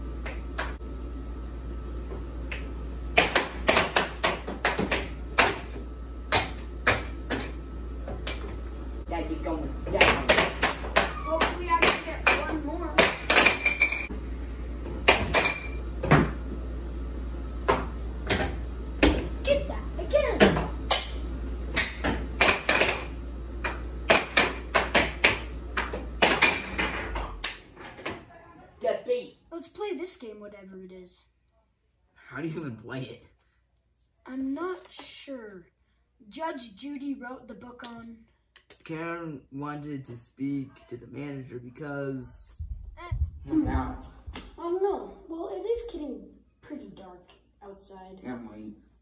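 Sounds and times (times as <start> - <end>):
steady low hum: 0.0 - 27.8
air hockey puck clacking: 2.5 - 7.6, 9.9 - 14.1, 21.8 - 27.9.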